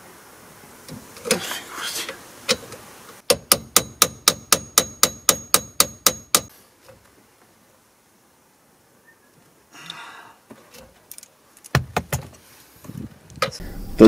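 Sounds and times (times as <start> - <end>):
hammer blows on metal: 3.3 - 6.5.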